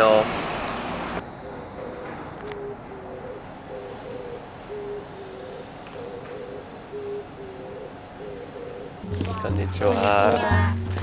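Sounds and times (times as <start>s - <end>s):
dove cooing: 1.2s - 9.5s.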